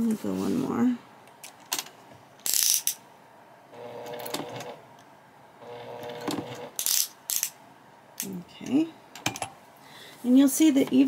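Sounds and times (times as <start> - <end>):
sewing machine stitching: 3.8 - 4.8, 5.6 - 6.8.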